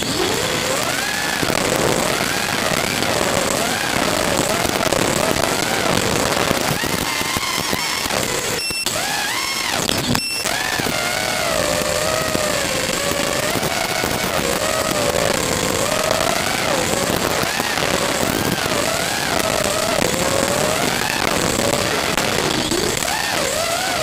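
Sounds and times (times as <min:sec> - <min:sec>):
quadcopter motors whining: 0:00.0 - 0:24.0.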